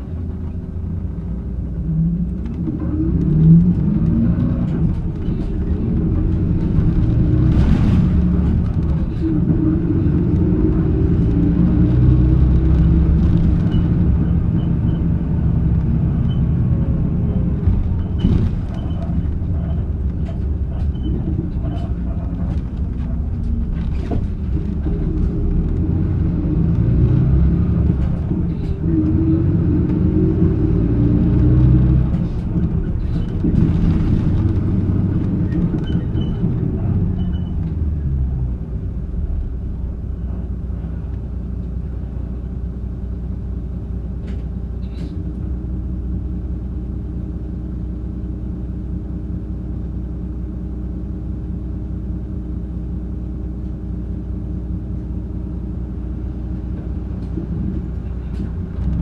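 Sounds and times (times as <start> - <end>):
diesel bus engine humming: 0.0 - 59.0.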